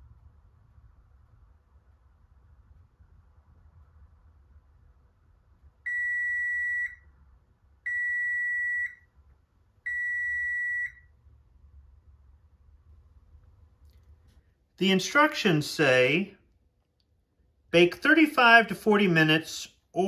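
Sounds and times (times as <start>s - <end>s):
oven timer long beeps: 5.9s - 7.2s, 7.8s - 9.2s, 9.8s - 11.2s.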